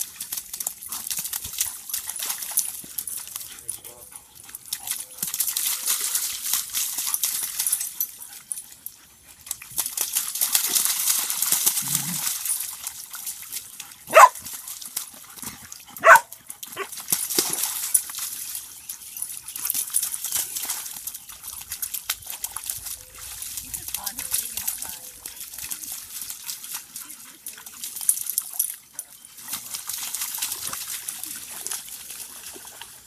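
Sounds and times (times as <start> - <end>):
dogs splashing through puddle: 0.0 - 33.0
sharp dog barks: 14.1 - 14.4, 16.0 - 16.9.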